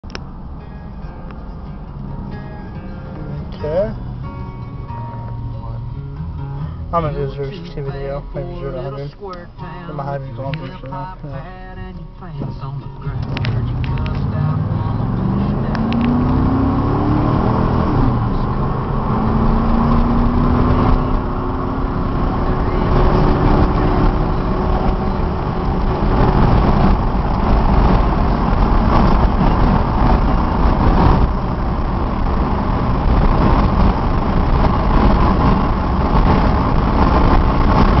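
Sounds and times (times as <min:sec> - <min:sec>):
road noise: 0:00.0 - 0:38.0
pickup engine accelerating hard: 0:12.5 - 0:38.0.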